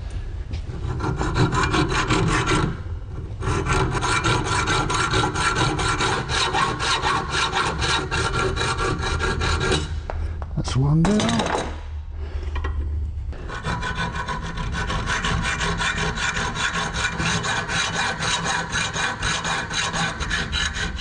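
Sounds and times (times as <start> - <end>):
hacksaw cutting steel: 0.9 - 2.8, 3.4 - 9.9, 13.4 - 21.0.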